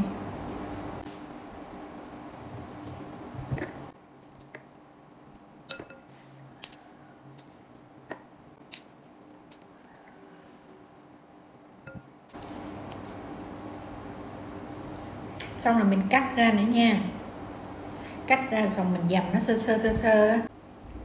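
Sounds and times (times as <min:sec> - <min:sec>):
bananas being peeled: 0:06.1 - 0:10.3, 0:12.3 - 0:15.6.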